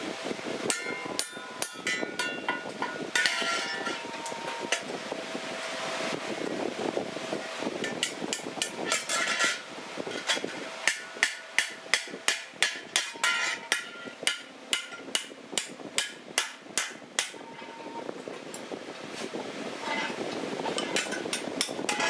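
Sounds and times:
hammer striking steel: 0.7s - 4.0s, 10.3s - 17.4s.

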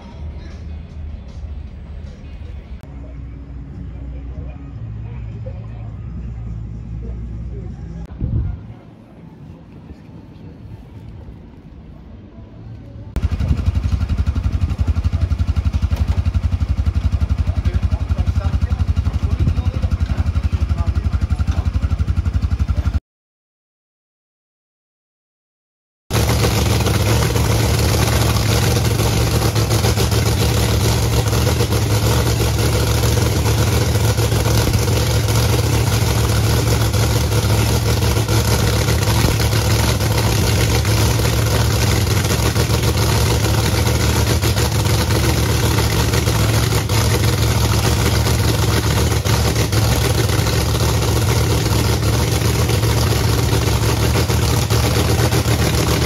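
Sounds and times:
race car engine idling: 13.2s - 23.0s, 26.1s - 56.0s.

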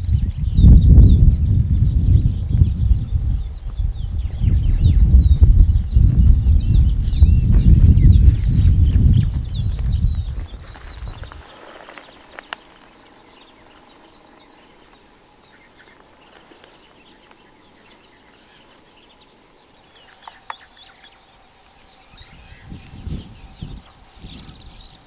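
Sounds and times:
bird chirps: 0.0s - 25.0s
low rumbling thuds: 0.7s - 11.4s.

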